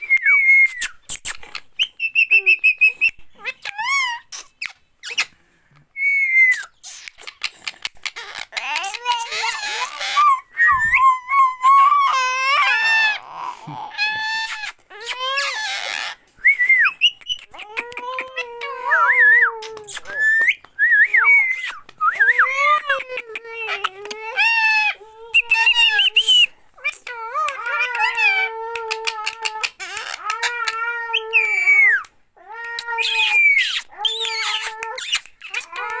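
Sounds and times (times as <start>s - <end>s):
parakeet harsh squawks: 14.0s - 16.2s.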